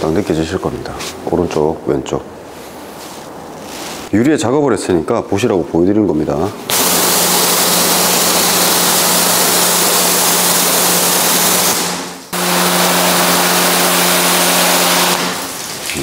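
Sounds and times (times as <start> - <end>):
pressure washer spray hissing: 6.7 - 15.9
pump humming: 6.7 - 16.0.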